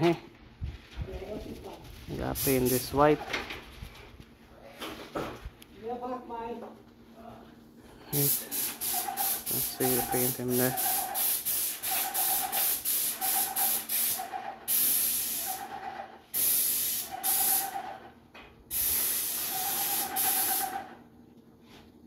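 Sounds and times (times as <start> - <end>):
paint spray gun hissing: 8.2 - 15.8, 16.4 - 17.9, 18.7 - 20.9.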